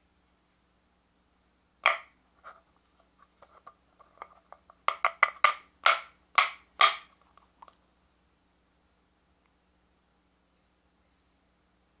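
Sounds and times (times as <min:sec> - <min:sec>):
plastic cup knocking on wooden plate: 0:01.8 - 0:02.1, 0:04.2 - 0:07.1.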